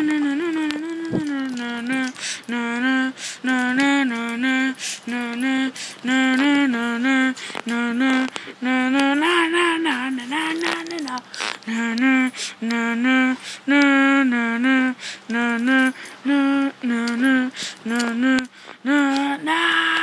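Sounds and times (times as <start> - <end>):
high voice singing: 0.0 - 20.0.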